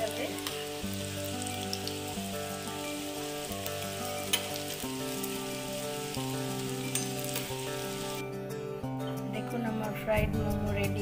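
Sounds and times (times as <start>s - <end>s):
food sizzling in hot oil: 0.0s - 8.2s.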